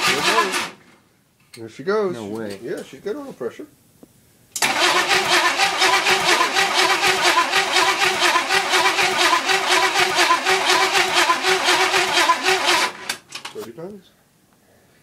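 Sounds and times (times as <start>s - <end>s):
starter cranking engine: 0.0s - 0.8s, 4.6s - 13.4s.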